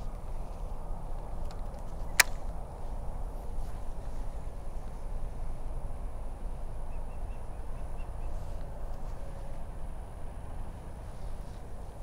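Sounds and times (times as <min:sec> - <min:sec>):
sharp click: 0:01.4 - 0:02.5.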